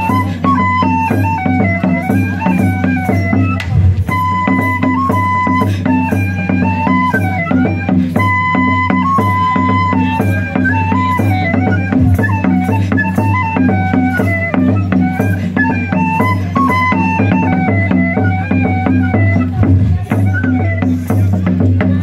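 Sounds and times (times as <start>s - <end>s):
folk band playing dance tune: 0.0s - 22.0s
rattling hand percussion: 0.0s - 22.0s.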